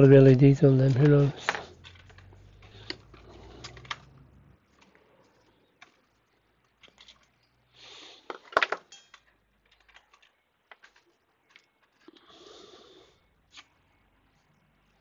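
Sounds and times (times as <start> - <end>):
small tools clattering on workbench: 8.3 - 12.1.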